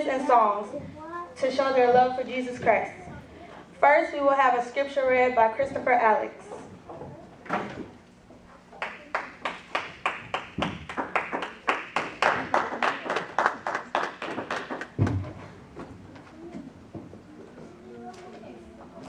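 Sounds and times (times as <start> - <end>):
congregation clapping: 8.8 - 15.1.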